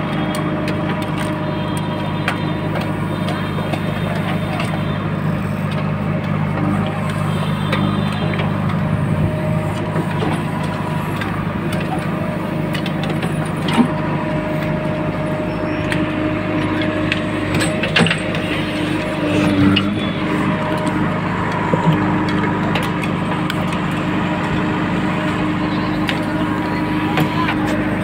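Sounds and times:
diesel engine running: 0.0s - 28.0s
machine clanks and knocks: 16.6s - 18.6s.

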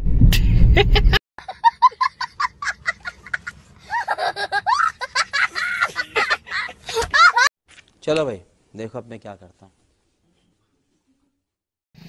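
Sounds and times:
child laughing: 0.8s - 7.5s.

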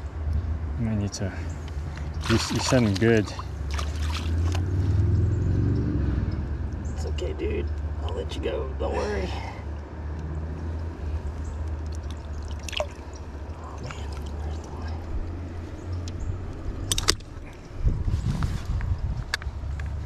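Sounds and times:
water sloshing and dripping: 1.9s - 4.8s, 11.6s - 16.1s
steady low rumble: 10.6s - 20.0s.

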